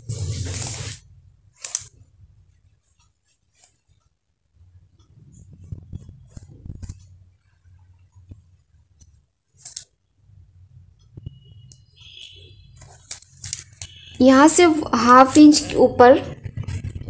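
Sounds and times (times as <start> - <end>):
chalk scratching on cloth: 0.0 - 1.0
fabric rustling: 0.0 - 1.9, 2.8 - 4.1, 5.0 - 8.6, 12.8 - 13.9
low steady hum: 0.0 - 17.0.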